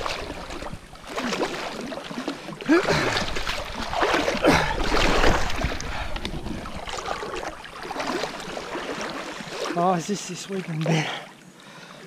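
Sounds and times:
water splashing and sloshing: 0.0s - 12.0s
wind on microphone: 2.9s - 8.7s.

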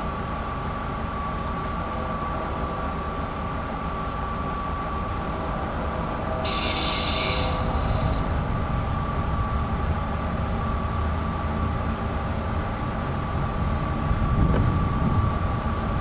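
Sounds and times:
low train rumble: 0.0s - 16.0s
crossing warning bell ringing: 6.4s - 8.4s.

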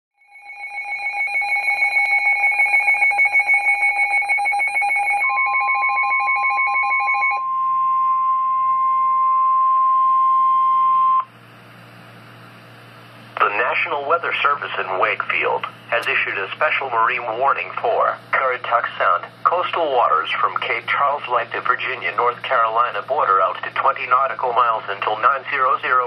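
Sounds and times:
fast two-tone beeping alarm: 0.2s - 11.3s
steady high alarm tone: 0.2s - 11.3s.

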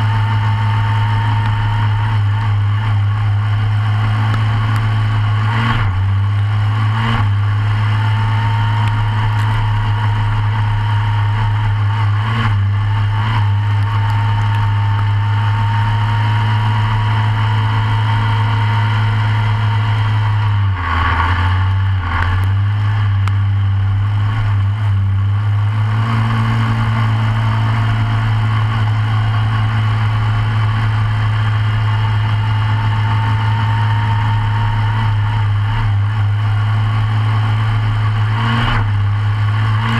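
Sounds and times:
kart engine racing: 0.0s - 39.9s
thin whine: 0.0s - 39.9s.

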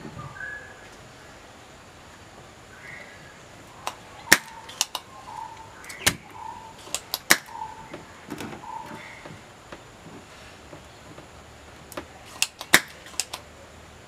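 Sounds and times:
loud sharp snaps: 3.8s - 8.1s, 11.9s - 13.5s
desoldering pump clicking: 3.8s - 8.6s, 10.7s - 13.5s.

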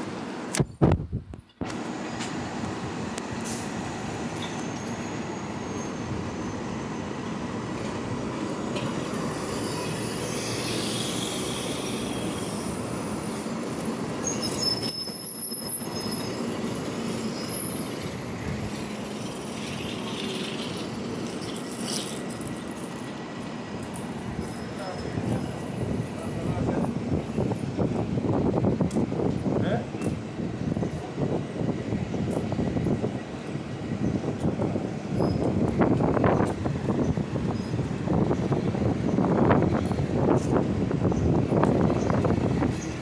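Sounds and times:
train rumbling: 0.0s - 43.0s
train wheels squealing: 4.3s - 8.0s, 8.7s - 13.4s, 14.1s - 22.7s, 24.3s - 25.8s, 34.9s - 35.6s, 37.4s - 37.8s.

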